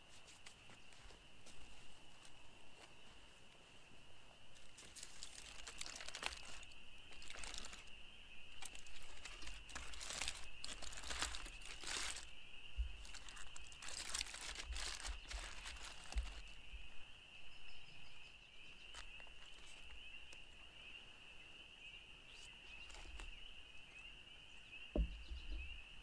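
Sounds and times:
aluminium foil crinkling: 4.6 - 7.9, 8.5 - 16.6.

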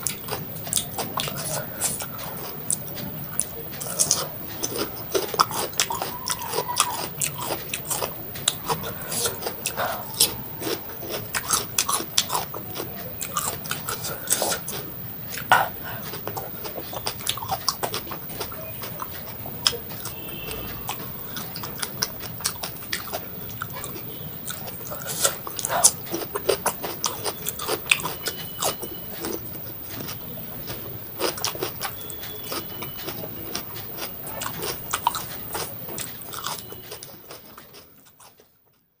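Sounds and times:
crunchy chewing of vegetables: 0.0 - 38.8
wet mouth sounds: 3.4 - 28.8.

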